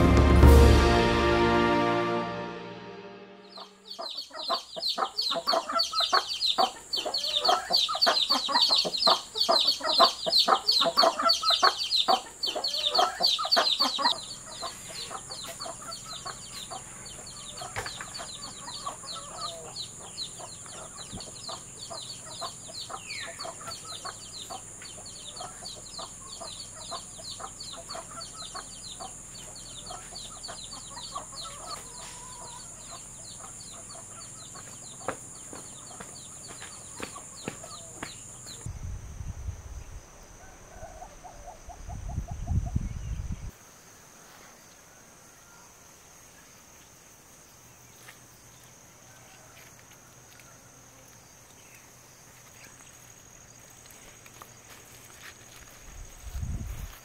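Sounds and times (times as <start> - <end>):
high-pitched drone: 0.0 - 4.0
chickens clucking: 3.5 - 38.7
faint bird calls: 3.6 - 38.7.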